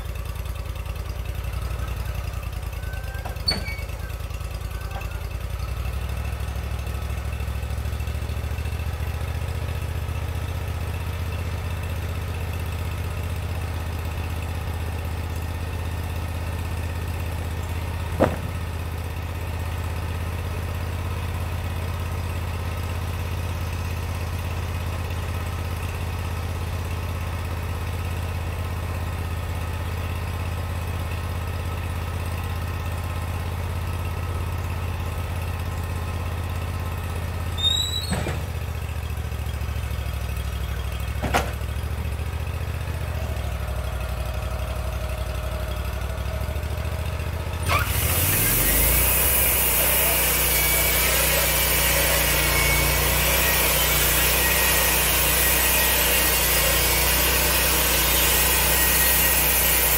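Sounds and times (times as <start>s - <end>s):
sawmill engine running: 0.0s - 59.9s
sharp knocks: 18.1s - 18.7s.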